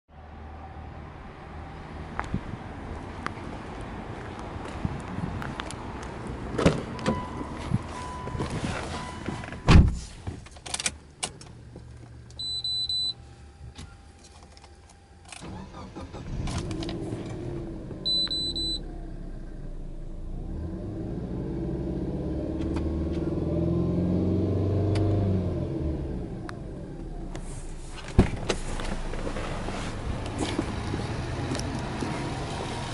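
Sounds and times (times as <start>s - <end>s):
knocks and thump in car: 9.2s - 10.4s, 28.0s - 29.4s
short high warning beeps: 12.4s - 13.2s, 18.1s - 18.8s
car engine starting and revving: 15.3s - 32.9s.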